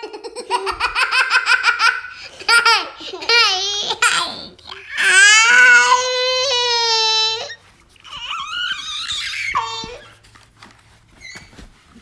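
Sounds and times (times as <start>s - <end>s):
young children laughing: 0.0s - 6.0s
small boy crying: 2.8s - 10.1s.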